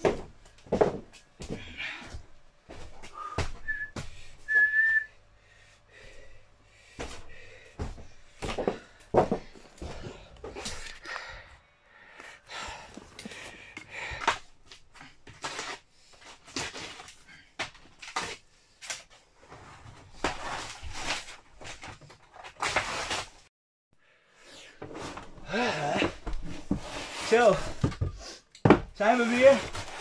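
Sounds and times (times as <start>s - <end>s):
footsteps on wooden floorboards: 0.0s - 4.2s, 7.0s - 10.7s.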